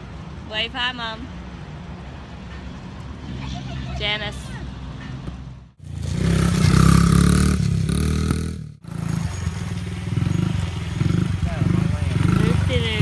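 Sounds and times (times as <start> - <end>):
dirt bike engine revving: 5.8 - 13.0.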